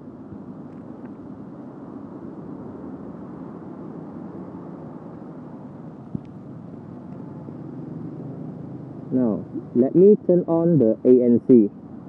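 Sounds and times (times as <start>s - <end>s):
faint traffic: 0.0s - 12.0s
muffled low rumble: 4.9s - 11.8s.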